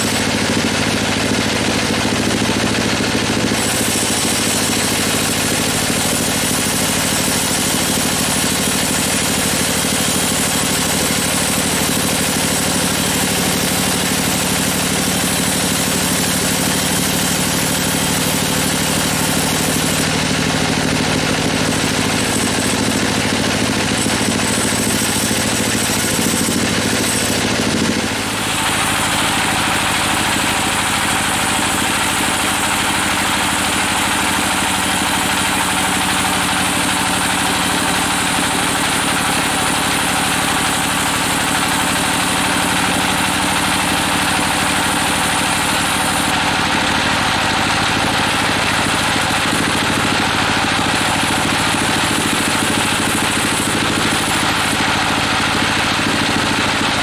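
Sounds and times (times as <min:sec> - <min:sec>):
band saw cutting log: 0:00.0 - 0:57.0.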